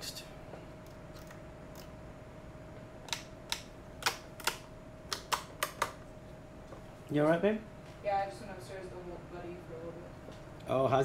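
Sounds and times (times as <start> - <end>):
faint steady whine: 0.0 - 11.0.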